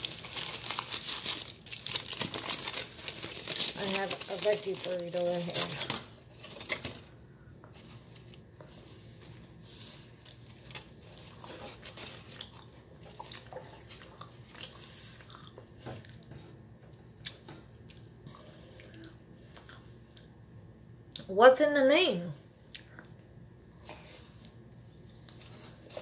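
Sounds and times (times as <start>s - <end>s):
person chewing quietly: 7.4s - 20.4s, 22.5s - 26.0s.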